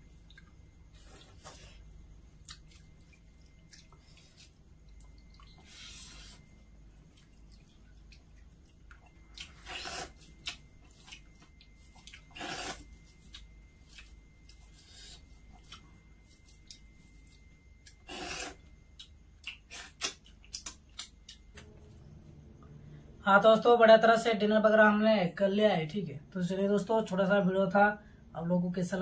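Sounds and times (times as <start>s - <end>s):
wet squishing of food: 0.0s - 21.7s
chewing: 2.4s - 21.6s.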